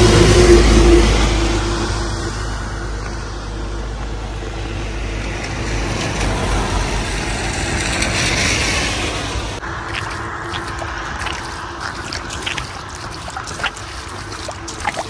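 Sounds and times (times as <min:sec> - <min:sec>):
car tyres hissing through water: 0:08.4 - 0:15.0.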